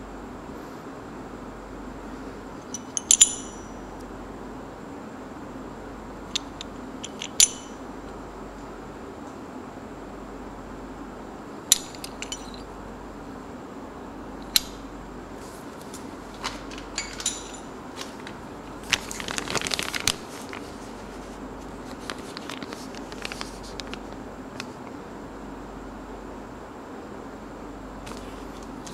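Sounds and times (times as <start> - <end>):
metallic clicks and clinks: 2.6 - 3.8, 6.4 - 7.8, 11.7 - 12.7, 16.6 - 17.7
dense crinkling: 15.4 - 24.8.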